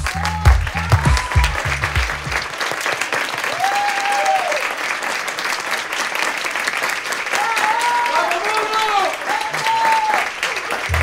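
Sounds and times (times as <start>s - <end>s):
pounding music beat: 0.0s - 2.4s
audience applauding: 0.0s - 11.0s.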